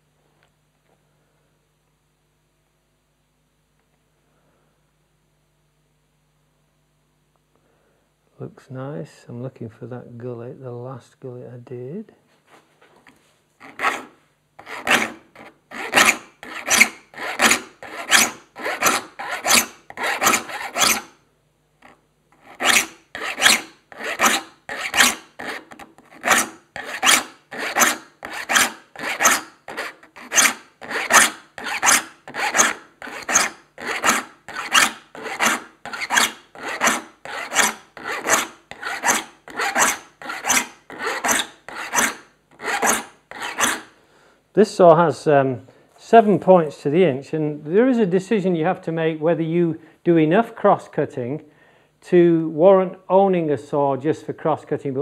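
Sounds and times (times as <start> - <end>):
file rasping on saw teeth: 13.6 - 21.2, 21.8 - 43.9.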